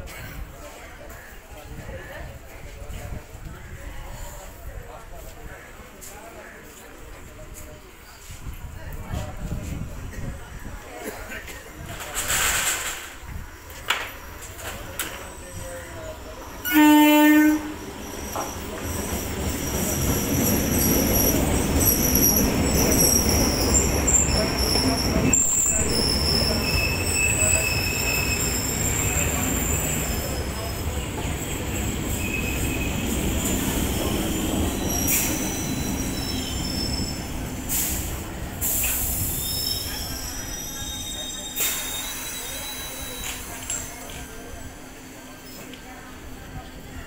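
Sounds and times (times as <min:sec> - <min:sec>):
train rumbling: 0:11.5 - 0:47.0
train horn blast: 0:16.6 - 0:17.8
wheel and brake squeals: 0:16.7 - 0:31.0, 0:32.1 - 0:38.0, 0:38.8 - 0:44.0.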